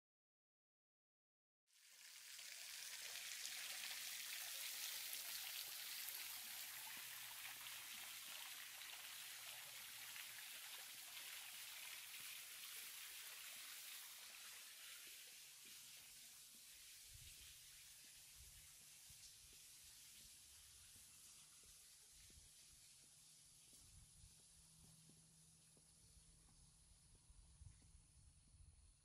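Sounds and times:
falling water splashing: 0:01.9 - 0:24.7.

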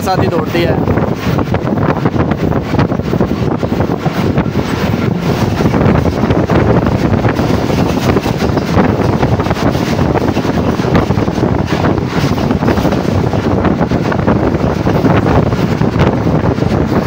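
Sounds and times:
express train running: 0:00.0 - 0:17.0
wind buffeting microphone: 0:00.0 - 0:17.0.

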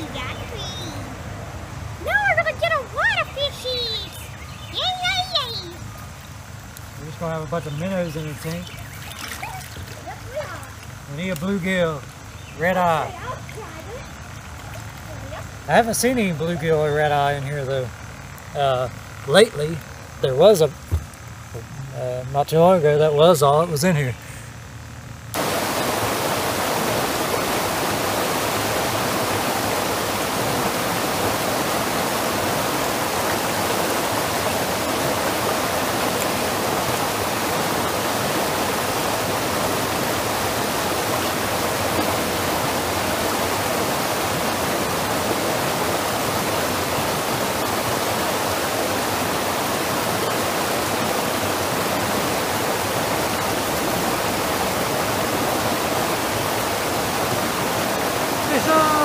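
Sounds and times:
water tumbling over rocks: 0:06.9 - 0:11.9, 0:25.4 - 0:59.0.

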